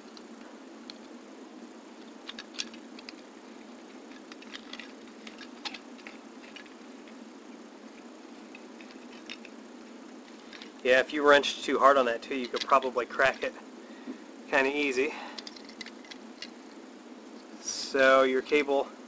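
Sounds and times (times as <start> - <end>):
steady background hiss: 0.0 - 19.0
plastic parts clicking: 2.0 - 7.2, 8.5 - 9.6, 10.3 - 10.8, 12.4 - 13.4, 15.4 - 16.7.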